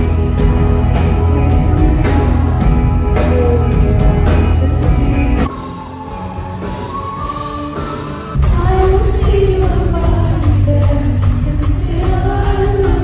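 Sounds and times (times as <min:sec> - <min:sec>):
woman singing: 0:00.0 - 0:05.6, 0:08.4 - 0:13.0
live rock band playing: 0:00.0 - 0:13.0.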